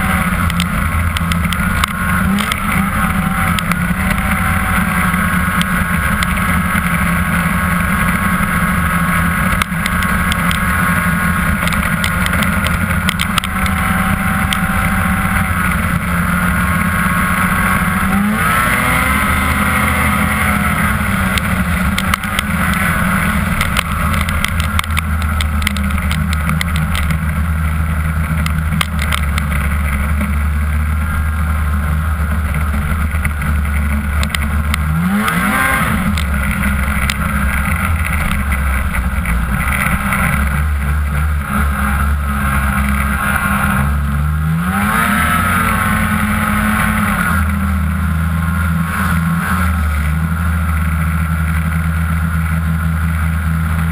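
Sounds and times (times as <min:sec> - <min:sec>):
snowmobile engine running hard: 0:00.0 - 0:53.9
sharp clicks: 0:00.3 - 0:04.4, 0:09.5 - 0:10.7, 0:11.5 - 0:14.7, 0:21.2 - 0:27.4, 0:33.0 - 0:41.3.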